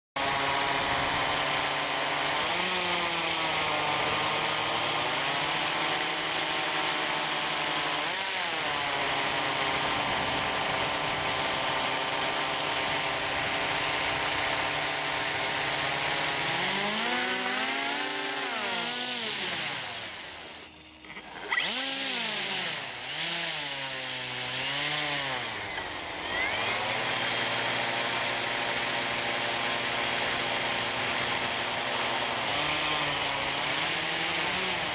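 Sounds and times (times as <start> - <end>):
propeller motors buzzing: 7.8 - 34.9.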